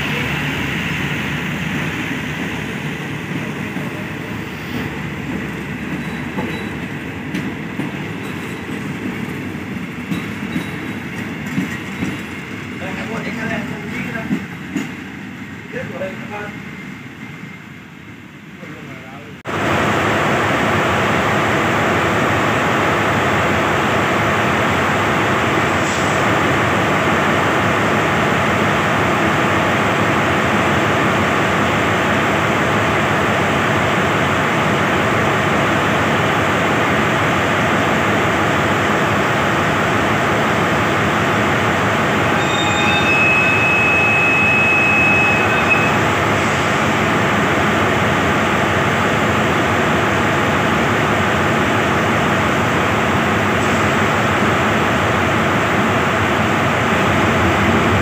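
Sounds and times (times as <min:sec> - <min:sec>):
diesel locomotive engine running: 0:00.0 - 0:58.0
high steady whistle tone: 0:42.4 - 0:46.0.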